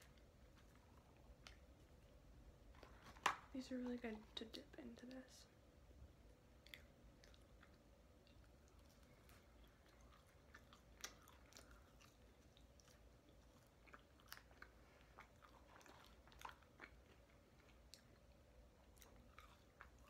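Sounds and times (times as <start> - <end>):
faint steady hum: 0.0 - 20.0
person chewing fries: 6.6 - 20.0.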